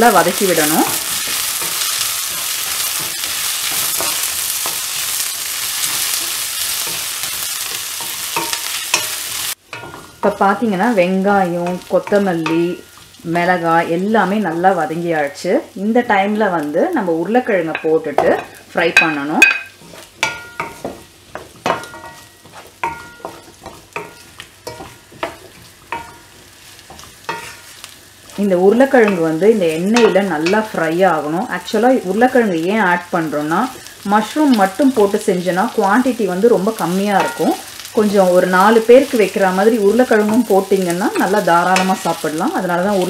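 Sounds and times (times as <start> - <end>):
onions sizzling in oil: 0.0 - 43.0
wooden spatula scraping pan: 19.7 - 29.3.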